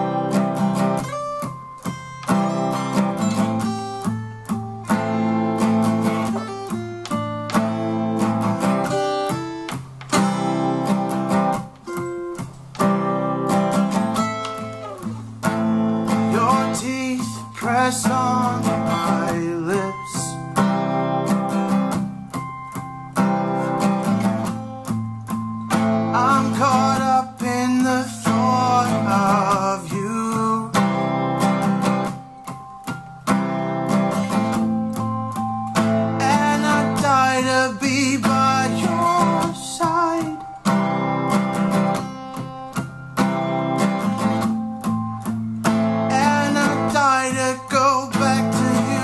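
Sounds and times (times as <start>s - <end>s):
acoustic guitar picking notes: 0.0s - 49.0s
acoustic guitar strumming chords: 0.0s - 49.0s
man singing: 16.1s - 20.6s, 26.1s - 31.1s, 36.1s - 40.6s, 46.1s - 49.0s.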